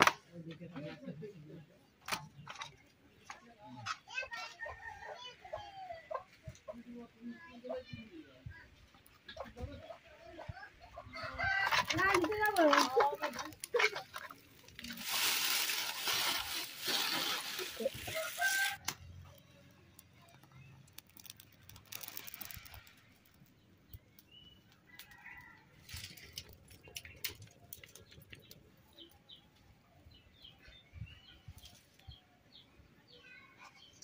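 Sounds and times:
dry leaves and twigs crackling: 11.4 - 28.7
wood fire crackling: 12.0 - 29.2
small birds chirping: 16.6 - 34.0.

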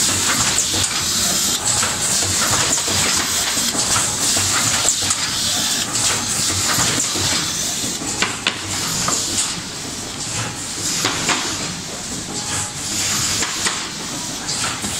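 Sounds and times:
machine mechanism clicks and clacks: 0.0 - 14.9.

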